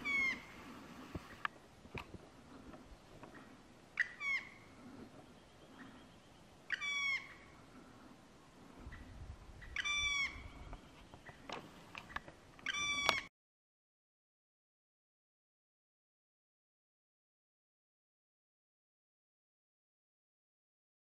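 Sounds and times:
woodpecker calling: 0:00.0 - 0:01.5, 0:03.2 - 0:08.1, 0:08.8 - 0:13.3.

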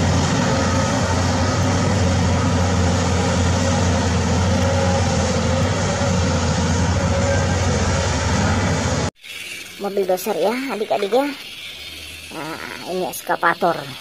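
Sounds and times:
bulldozer diesel engine droning: 0:00.0 - 0:09.2.

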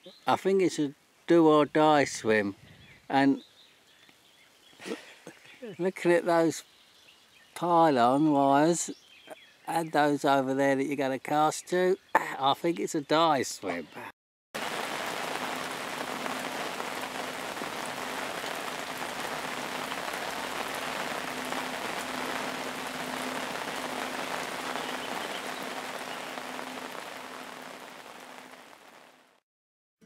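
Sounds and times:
rain falling on a lake: 0:14.6 - 0:29.4.

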